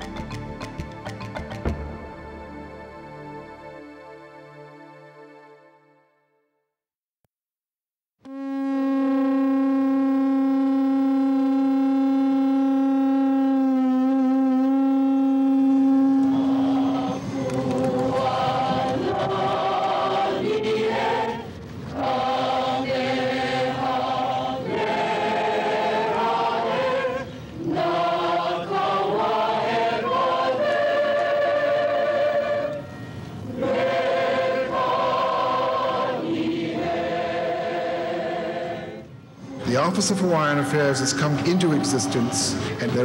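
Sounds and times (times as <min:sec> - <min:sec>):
choir singing slow hymn: 0:15.6 - 0:43.0.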